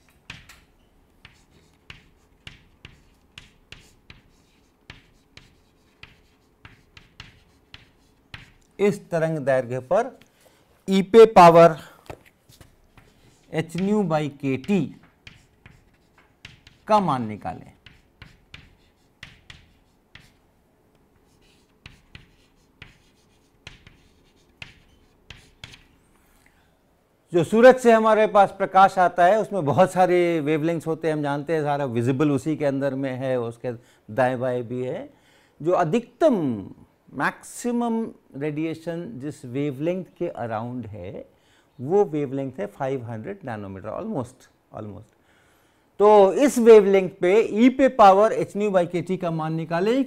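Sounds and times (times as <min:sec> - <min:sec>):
chalk tapping and scratching on blackboard: 0:00.0 - 0:08.8, 0:12.1 - 0:20.5, 0:21.2 - 0:26.0.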